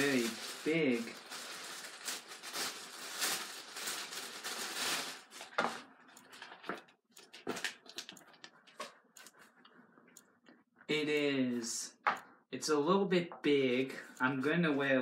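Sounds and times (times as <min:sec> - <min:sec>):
plastic wrapping crinkling: 0:00.0 - 0:08.8.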